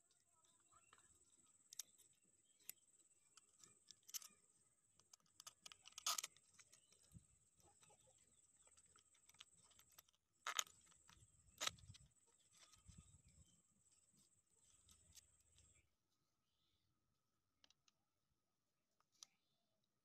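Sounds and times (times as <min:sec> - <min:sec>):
small handling clicks: 0:00.9 - 0:13.0.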